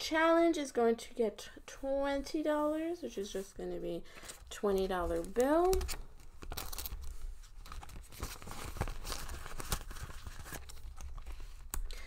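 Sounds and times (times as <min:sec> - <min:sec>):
plastic pouches crinkling: 0:04.2 - 0:11.7
paper banknotes handled: 0:05.0 - 0:11.7.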